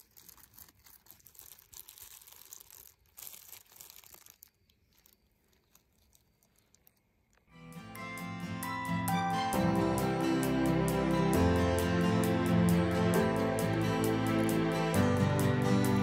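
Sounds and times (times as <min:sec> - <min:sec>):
leaves rustling: 0:00.0 - 0:07.3
plastic glove crinkling: 0:00.0 - 0:07.6.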